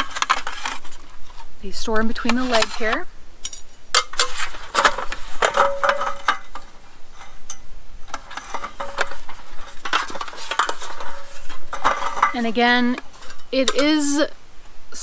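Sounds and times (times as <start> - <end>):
aluminum table slats clattering: 2.2 - 6.7, 8.1 - 14.0.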